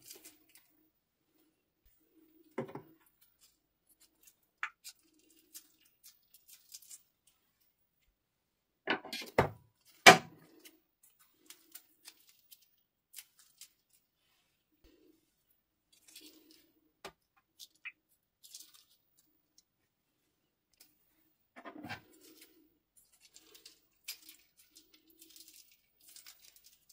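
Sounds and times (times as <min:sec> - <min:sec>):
plastic crinkles and clicks: 0:00.0 - 0:00.7, 0:03.0 - 0:07.4, 0:09.8 - 0:14.0, 0:22.0 - 0:26.9.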